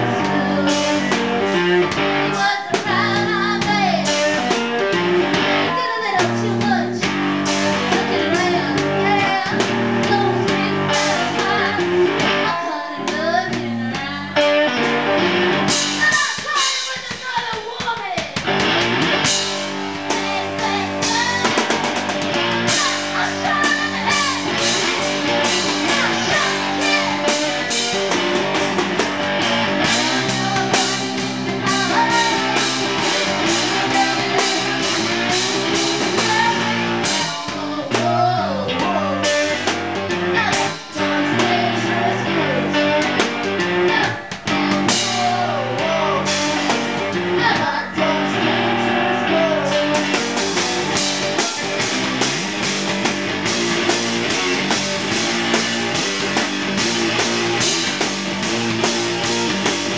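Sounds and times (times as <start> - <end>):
woman singing: 0.0 - 1.5, 2.2 - 4.7, 5.3 - 14.8, 16.0 - 18.4, 20.1 - 21.7, 22.7 - 24.6, 25.3 - 28.2, 29.8 - 51.7
electric guitar chords: 0.0 - 16.3, 18.4 - 59.9
drum kit hits: 14.6 - 17.2, 18.2 - 41.8, 48.5 - 59.9.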